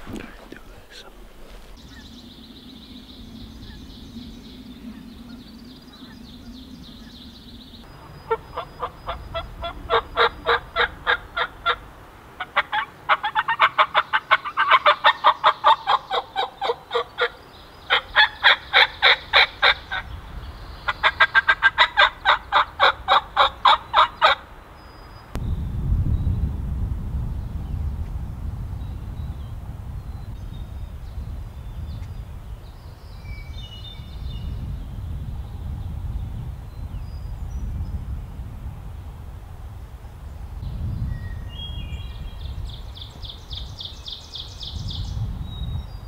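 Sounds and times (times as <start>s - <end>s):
turkey yelping: 8.0s - 11.8s, 12.4s - 20.0s, 20.9s - 24.4s.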